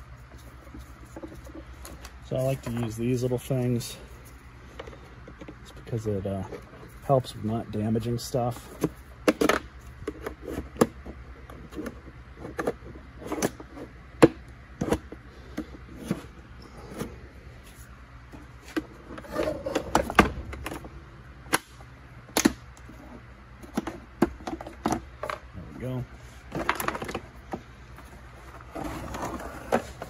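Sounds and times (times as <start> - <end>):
plastic scraping and rubbing: 0.1 - 3.0, 18.4 - 20.9, 26.5 - 30.0
plastic parts clicking and knocking: 8.7 - 13.6, 26.5 - 27.6.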